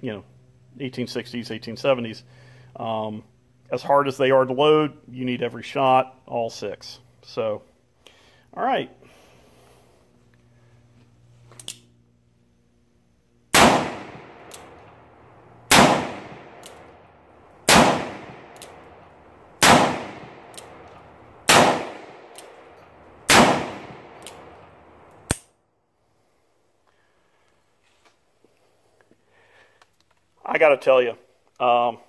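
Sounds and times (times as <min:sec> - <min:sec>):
revolver gunshots: 0:13.5 - 0:25.4.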